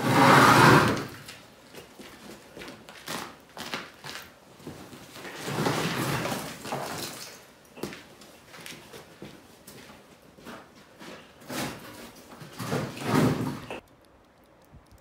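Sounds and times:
snowmobile scraping on concrete: 0:00.0 - 0:01.3
footsteps: 0:00.1 - 0:13.8.

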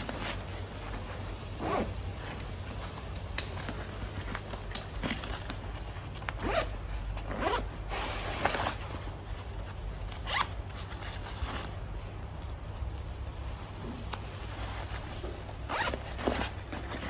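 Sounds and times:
backpack zipper being pulled: 0:01.6 - 0:01.9, 0:06.4 - 0:08.7, 0:15.7 - 0:16.6.

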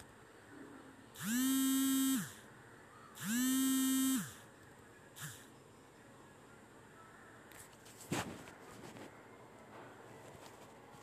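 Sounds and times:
smartphone vibrating: 0:01.2 - 0:02.4, 0:03.2 - 0:04.4, 0:05.2 - 0:05.5.

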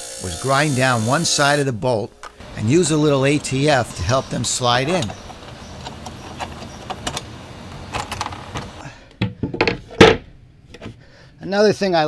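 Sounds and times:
wooden panels knocking and thudding: 0:04.9 - 0:11.0.

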